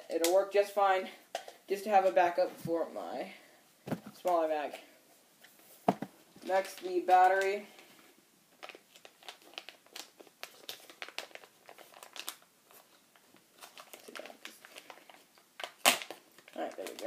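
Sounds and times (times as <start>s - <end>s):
plastic blister packaging crinkling: 6.4s - 7.9s, 8.5s - 17.0s.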